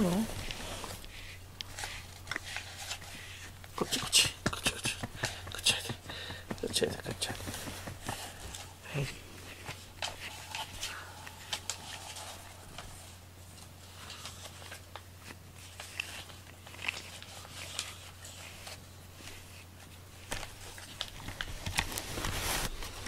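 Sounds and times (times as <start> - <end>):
cat rustling and clicking: 0.3 - 8.8.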